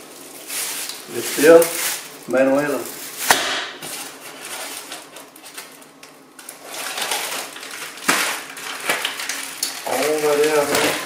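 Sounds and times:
packaging rustling and crinkling: 0.0 - 11.0
sharp knock: 3.3 - 3.8.

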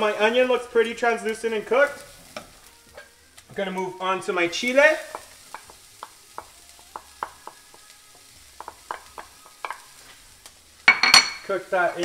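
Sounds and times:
rice sizzling in a pan: 0.0 - 12.0
wooden spoon tapping and scraping dish: 8.6 - 9.8.

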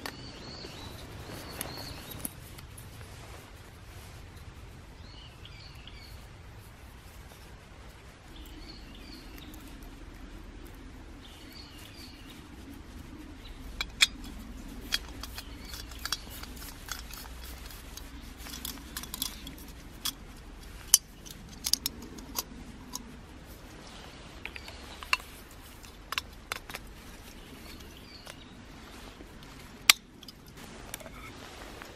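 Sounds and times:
faint bird chirps: 0.0 - 2.3, 11.1 - 13.7.

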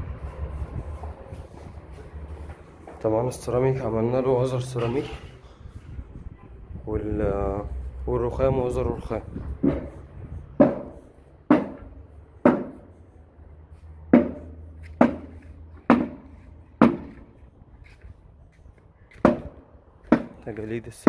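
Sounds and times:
footsteps on stone stairs: 0.0 - 3.5, 14.1 - 20.9.

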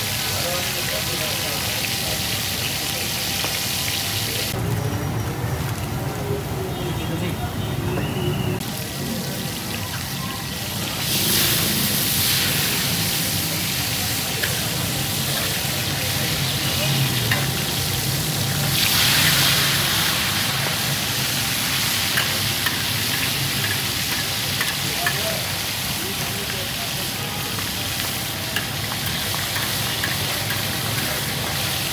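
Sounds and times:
fish sizzling on a griddle: 0.0 - 4.6, 8.6 - 31.9.

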